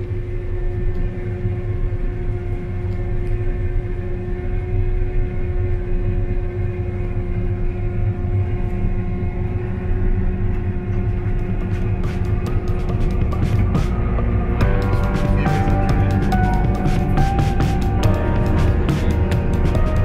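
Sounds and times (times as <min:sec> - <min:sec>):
combine harvester running: 0:11.6 - 0:20.0.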